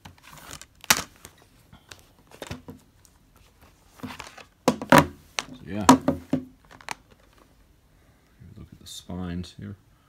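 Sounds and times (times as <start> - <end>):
plastic case handling noise: 0.0 - 7.5
plastic cases clacking on wood: 4.0 - 7.2.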